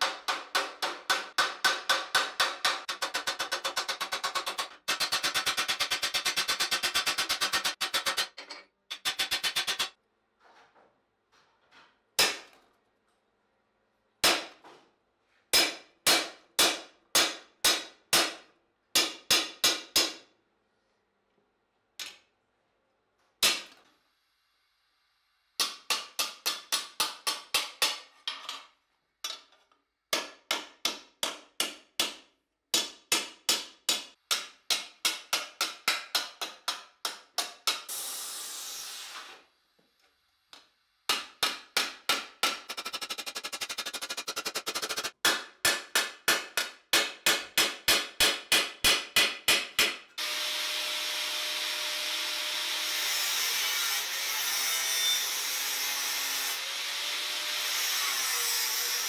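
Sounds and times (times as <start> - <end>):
hammer striking metal plate: 0.0 - 10.0, 41.1 - 50.1.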